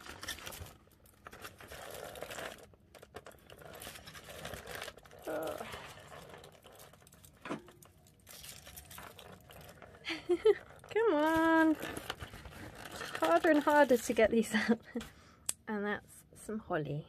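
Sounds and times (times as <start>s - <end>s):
paper and cardboard rustling: 0.0s - 14.7s.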